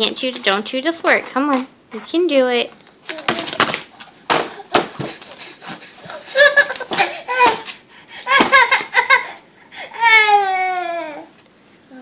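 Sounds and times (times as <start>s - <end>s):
toddler crying: 6.0s - 11.3s.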